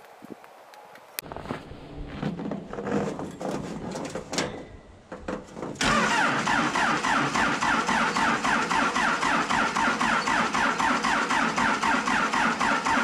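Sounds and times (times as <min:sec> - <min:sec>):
diesel engine cranking and firing: 0:05.2 - 0:13.0.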